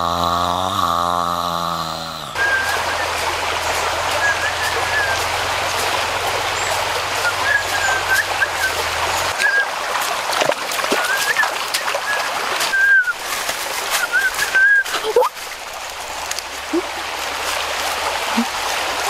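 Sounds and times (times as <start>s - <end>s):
creek water running: 0.0s - 19.0s
water splashes: 0.0s - 19.0s
bird whistled chirps: 4.2s - 5.2s, 7.2s - 8.8s.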